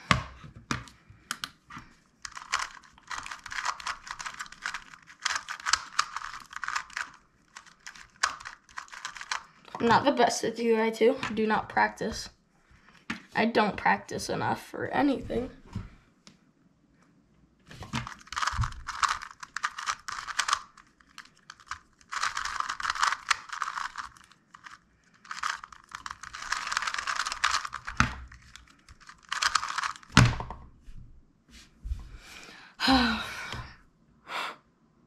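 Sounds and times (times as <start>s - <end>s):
rapid plastic clicking: 2.2s - 9.6s, 17.9s - 30.3s.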